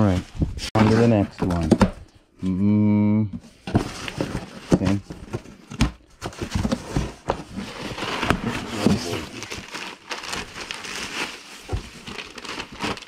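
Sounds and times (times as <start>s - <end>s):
cardboard rustling and scraping: 0.0s - 2.0s, 3.4s - 13.0s.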